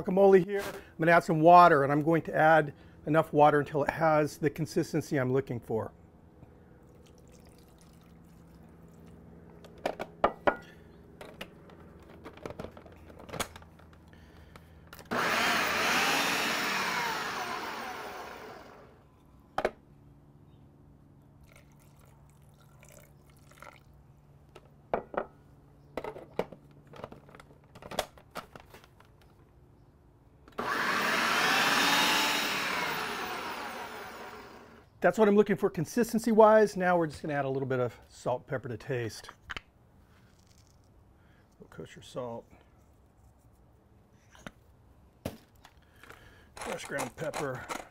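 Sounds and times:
food processor blending: 15.1s - 19.0s, 30.5s - 34.8s.

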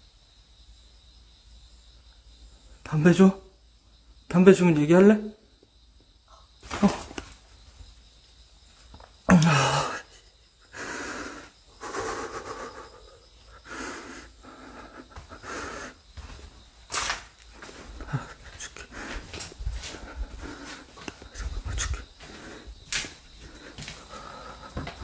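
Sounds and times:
person breathing heavily: 9.3s - 16.6s, 17.6s - 25.0s.

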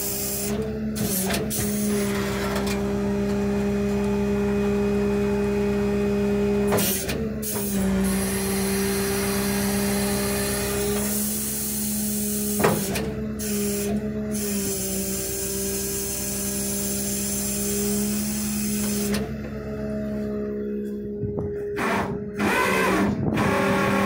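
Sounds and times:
hydraulic pump humming: 0.0s - 24.0s
tow truck lift clunk: 0.4s - 5.3s, 6.4s - 14.4s, 18.2s - 24.0s.

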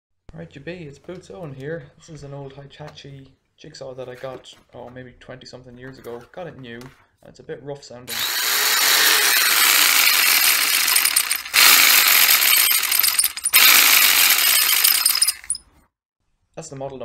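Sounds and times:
jigsaw running: 8.1s - 15.6s.

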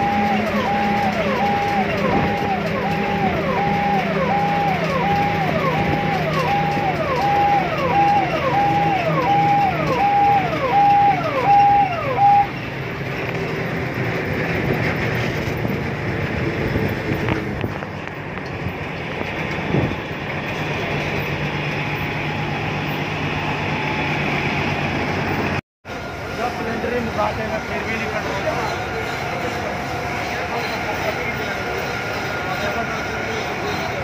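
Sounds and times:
electronic siren cycling: 0.0s - 12.6s.

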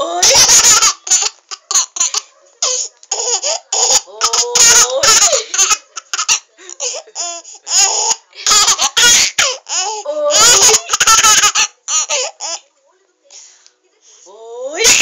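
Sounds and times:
baby laughing: 3.1s - 12.6s.

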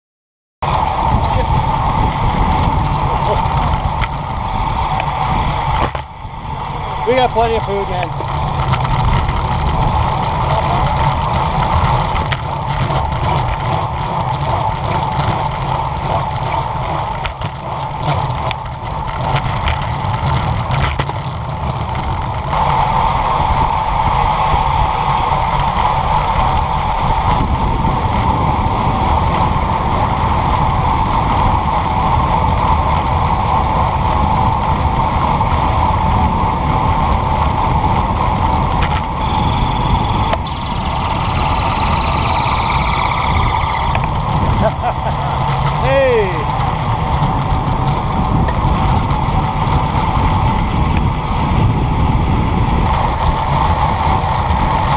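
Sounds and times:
bike tyres rolling on asphalt: 0.6s - 54.9s
wind rushing over camera: 0.6s - 54.9s
steady hum: 0.7s - 12.4s, 22.5s - 30.4s, 38.9s - 53.3s.

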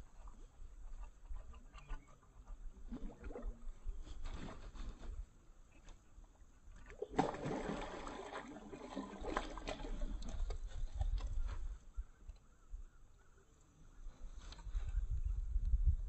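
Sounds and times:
fish splashing in water: 6.9s - 10.6s.

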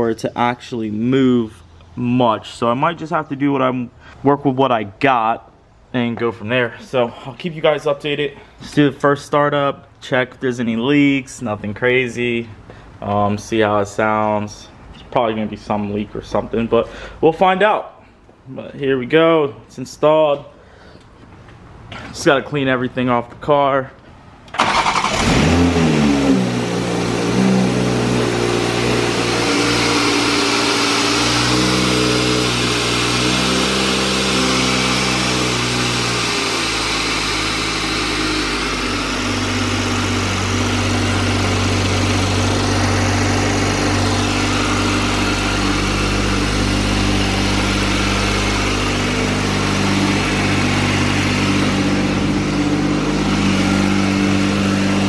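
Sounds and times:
car engine starting and idling: 24.4s - 55.0s.

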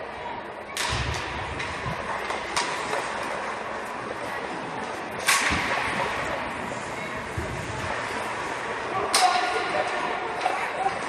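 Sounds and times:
hockey stick hitting puck: 0.7s - 3.4s, 5.2s - 6.4s, 9.0s - 11.0s.

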